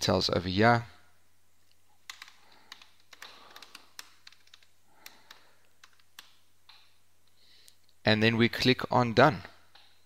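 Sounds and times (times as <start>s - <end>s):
computer keyboard typing: 2.0s - 6.9s.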